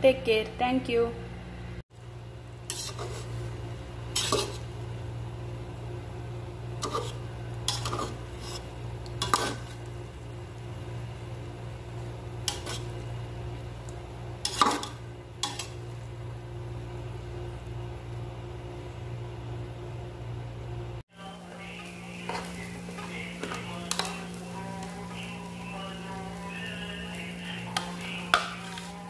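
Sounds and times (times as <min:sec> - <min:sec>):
metal spatula scraping a pot: 0:02.6 - 0:03.4, 0:04.1 - 0:04.8, 0:06.8 - 0:09.8, 0:12.4 - 0:13.0, 0:14.4 - 0:15.8, 0:27.5 - 0:29.0.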